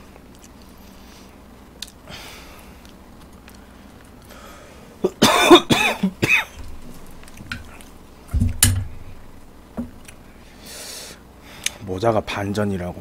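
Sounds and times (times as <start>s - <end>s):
man clearing his throat: 5.0s - 6.6s
man coughing: 5.0s - 6.6s
sharp knock: 8.4s - 9.0s.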